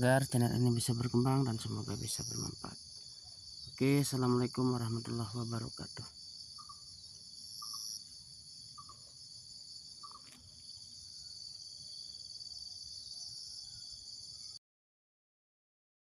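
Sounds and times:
insects droning: 0:00.0 - 0:14.6
short insect chirps: 0:00.0 - 0:14.6.

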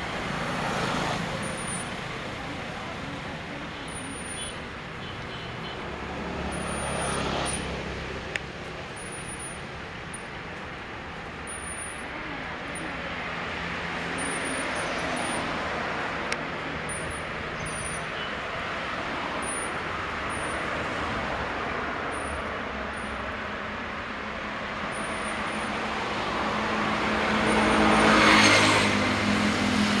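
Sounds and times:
road traffic passing: 0:00.0 - 0:30.0
vehicle passing close: 0:25.7 - 0:30.0.

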